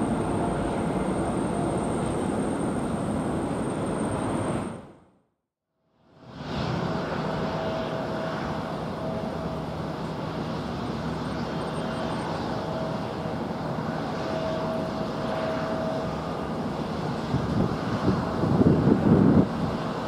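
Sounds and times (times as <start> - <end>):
jet engine hum: 0.0 - 5.1, 6.1 - 20.0
faint whining tone: 6.5 - 18.3.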